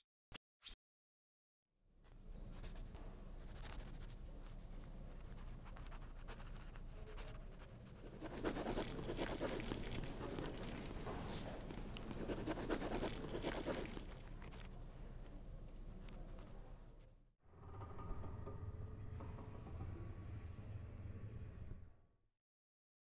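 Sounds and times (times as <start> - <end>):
pencils scratching on paper: 2.4 - 14.8.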